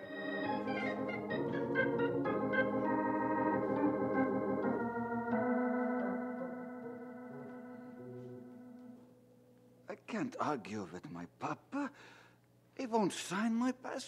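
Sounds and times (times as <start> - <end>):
organ music: 0.0 - 9.9.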